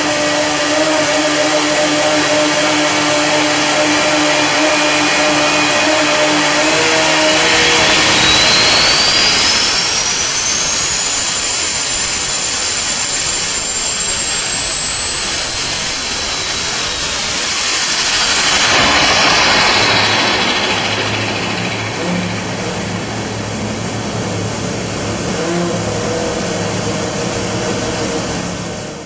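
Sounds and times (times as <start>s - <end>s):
raspy engine running hard: 0.0s - 29.0s
turbo whine rising in pitch: 0.0s - 29.0s.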